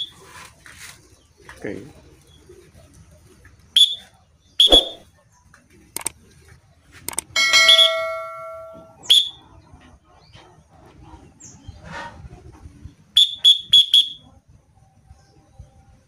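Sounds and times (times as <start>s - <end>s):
shrill whistle toots: 3.8s - 5.0s, 9.0s - 9.4s, 13.2s - 14.3s
chime ringing: 7.4s - 9.0s.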